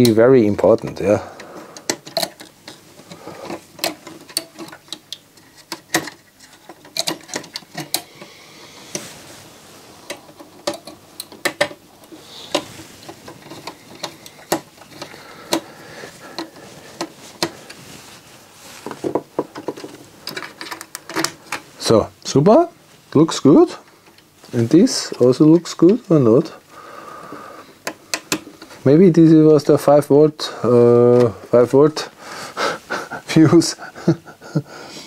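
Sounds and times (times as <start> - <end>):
handling metal parts: 0.0 - 21.7.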